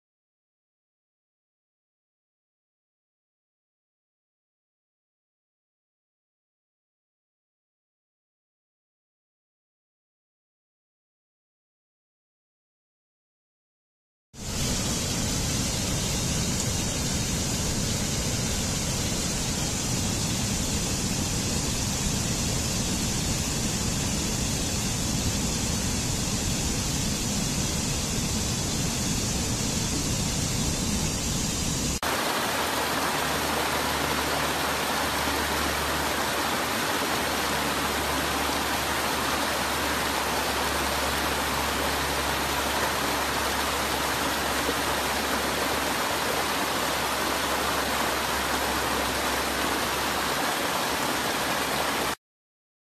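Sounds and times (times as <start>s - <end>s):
fuller rush of water: 14.4s - 52.2s
water tumbling over rocks: 32.0s - 35.2s.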